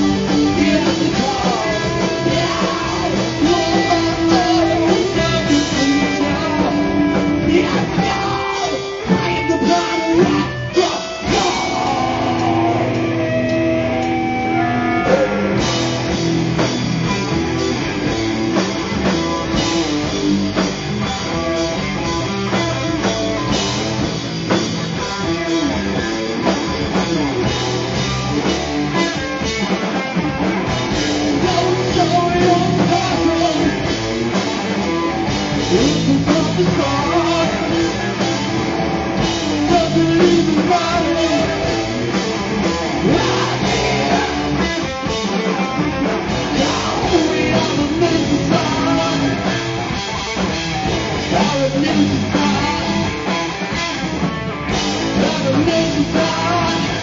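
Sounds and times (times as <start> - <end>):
person singing: 0.0 - 15.8, 31.3 - 33.9, 35.6 - 38.2, 39.5 - 42.0, 43.0 - 45.0, 46.0 - 49.8, 51.1 - 53.5, 55.0 - 57.0
drum kit: 0.0 - 57.0
electric guitars: 0.0 - 57.0.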